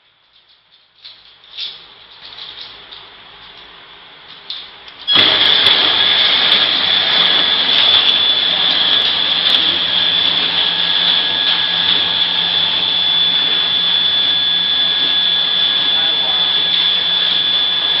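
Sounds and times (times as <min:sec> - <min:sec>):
packing machine running: 0:04.9 - 0:18.0
high-pitched machine whine: 0:05.0 - 0:18.0.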